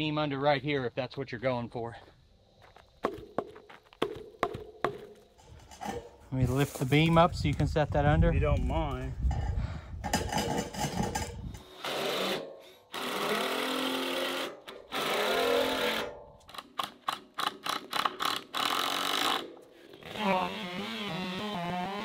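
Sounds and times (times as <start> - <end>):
drill trigger bursts: 11.6 - 16.1
cordless drill motor: 17.7 - 22.0.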